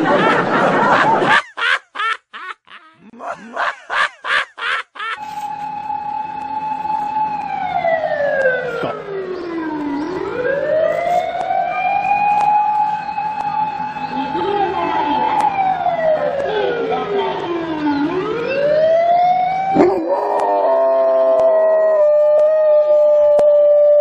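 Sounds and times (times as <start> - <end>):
siren wailing: 4.2 - 24.0.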